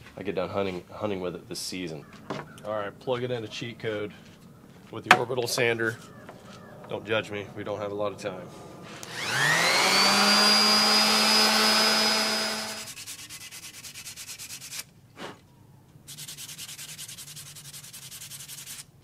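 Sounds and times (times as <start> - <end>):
hand rubbing along wood: 0.6 - 14.8
electric orbital sander running: 8.2 - 13.0.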